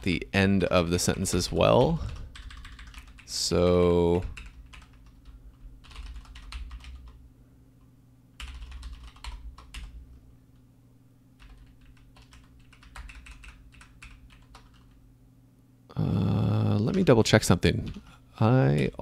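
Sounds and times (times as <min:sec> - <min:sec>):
faint low hum: 0:00.0 - 0:19.0
typing on computer keyboard: 0:01.3 - 0:03.3, 0:04.1 - 0:07.2, 0:08.4 - 0:10.0, 0:11.4 - 0:15.0.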